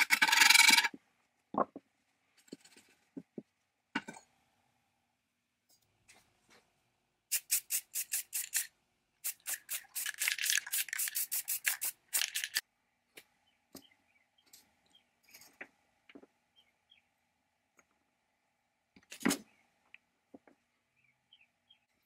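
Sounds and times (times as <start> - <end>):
spray-paint can hissing: 7.3 - 12.6.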